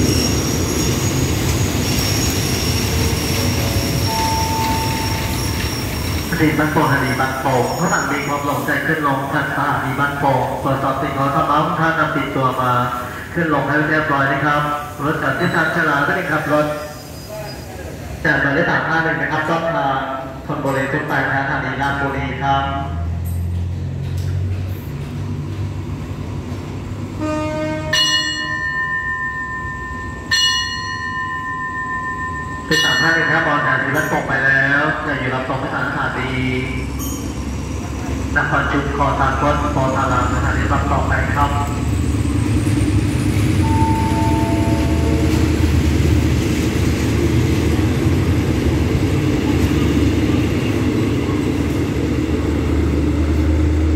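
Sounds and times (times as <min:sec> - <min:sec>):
train humming: 0:00.0 - 0:53.9
station bell ringing: 0:02.1 - 0:08.6, 0:27.9 - 0:35.2, 0:36.8 - 0:37.5, 0:43.4 - 0:46.4
lower ringing tone: 0:04.1 - 0:05.6, 0:28.0 - 0:33.1, 0:43.6 - 0:45.7
brief high tone: 0:43.6 - 0:45.6.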